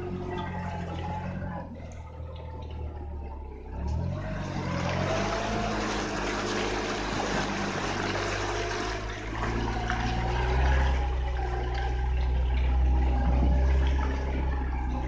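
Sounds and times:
engine running at low speed: 0:00.0 - 0:15.0
water sloshing around a wheel: 0:00.0 - 0:15.0.

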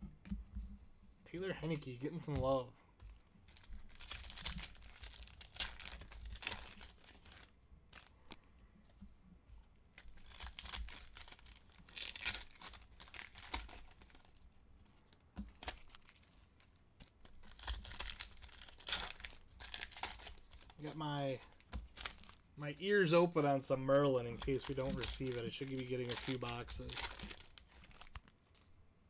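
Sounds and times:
foil wrappers crinkling and tearing: 0:03.5 - 0:08.2, 0:10.0 - 0:14.4, 0:15.5 - 0:28.7.

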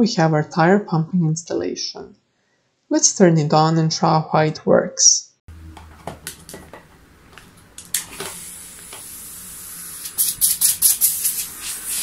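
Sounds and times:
compressor humming: 0:05.5 - 0:12.0
air hissing from hose: 0:07.9 - 0:12.0
hose and gauge clicks: 0:10.0 - 0:12.0.

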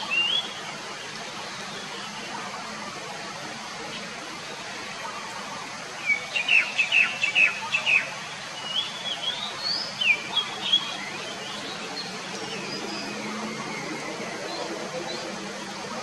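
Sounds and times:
bird singing: 0:00.0 - 0:00.7, 0:06.0 - 0:15.7.

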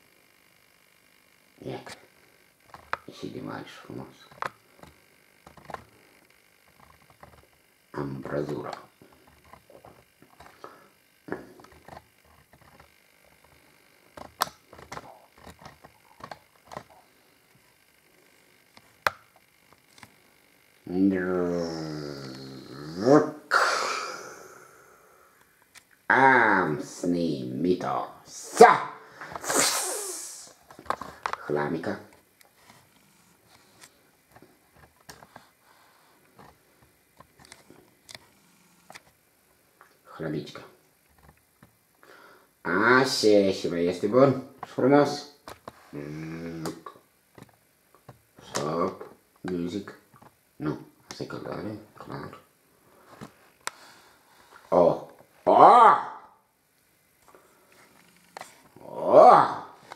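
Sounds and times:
faint clicks and taps: 0:04.3 - 0:05.9.

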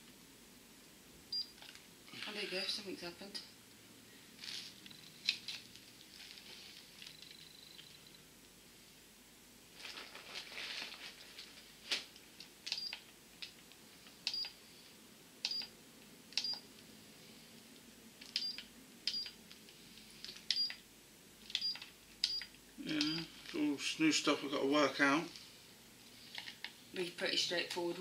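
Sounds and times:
rustle of handling: 0:04.4 - 0:07.4, 0:09.7 - 0:12.3.

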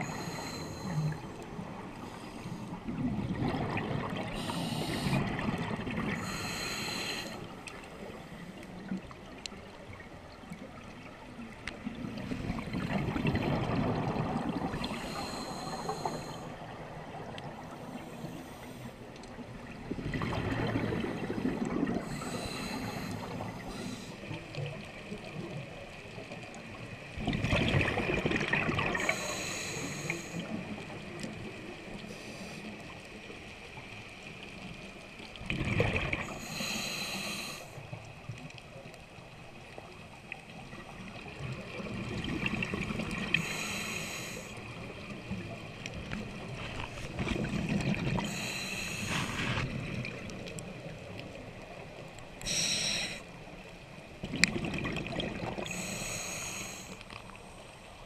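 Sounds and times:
regulator inhale hiss: 0:00.0 - 0:02.8, 0:04.3 - 0:05.4, 0:06.1 - 0:07.8, 0:14.8 - 0:16.6, 0:17.7 - 0:19.1, 0:22.0 - 0:24.4, 0:28.9 - 0:30.9, 0:32.0 - 0:32.9, 0:36.3 - 0:37.9, 0:43.3 - 0:44.8, 0:48.2 - 0:49.7, 0:52.4 - 0:53.4, 0:55.6 - 0:57.6
exhaled bubbles underwater: 0:00.0 - 0:18.6, 0:19.3 - 0:32.2, 0:34.6 - 0:38.6, 0:39.6 - 0:56.2.

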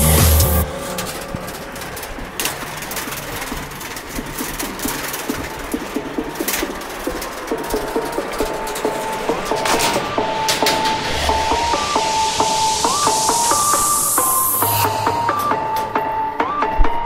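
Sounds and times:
background music: 0:00.0 - 0:02.9, 0:05.0 - 0:17.0
bicycle tyres rolling: 0:00.0 - 0:17.0
small rattles and clicks: 0:00.6 - 0:11.3
thin steady whine: 0:08.2 - 0:16.5.

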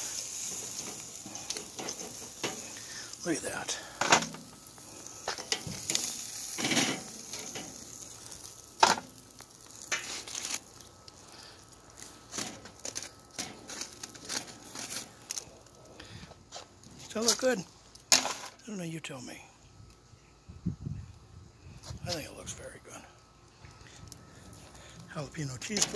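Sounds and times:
metal tongs scraping grill grate: 0:00.0 - 0:10.8, 0:12.0 - 0:15.6, 0:25.4 - 0:25.9
aluminium foil crinkling: 0:00.0 - 0:18.6, 0:23.4 - 0:25.9.

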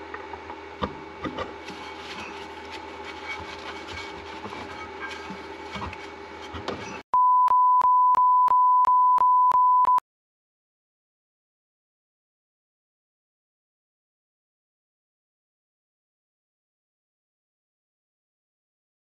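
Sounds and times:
steady hum: 0:00.0 - 0:07.0
high electronic beep: 0:07.2 - 0:10.0.

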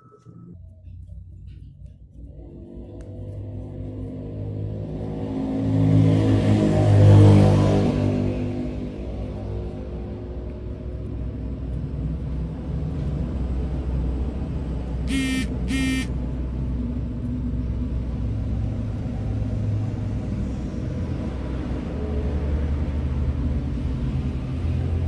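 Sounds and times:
short high-pitched beeps: 0:00.0 - 0:00.6, 0:15.1 - 0:16.1.

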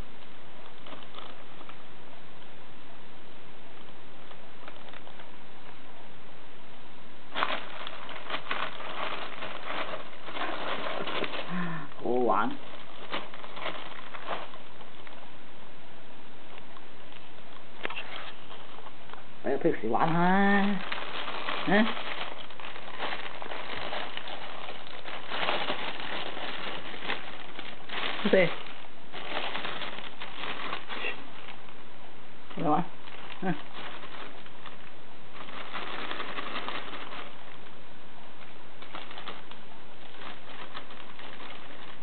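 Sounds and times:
bag rustling and crinkling: 0:00.6 - 0:01.8, 0:07.3 - 0:15.3, 0:17.4 - 0:31.8, 0:32.5 - 0:37.8, 0:38.4 - 0:42.0.

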